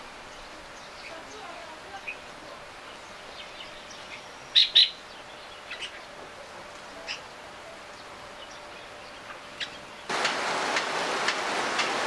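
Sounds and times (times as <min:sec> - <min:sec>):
soft outdoor hiss: 0:00.0 - 0:12.0
bulbuls chirping: 0:00.3 - 0:10.2.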